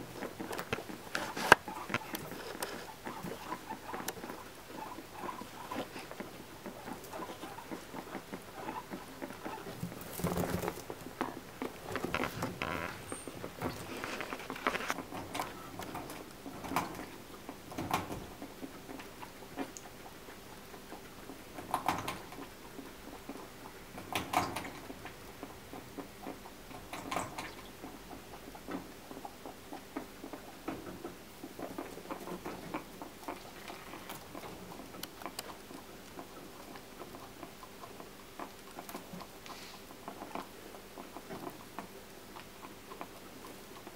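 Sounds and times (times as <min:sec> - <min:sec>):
guinea pigs rustling in hay: 0:00.0 - 0:17.3.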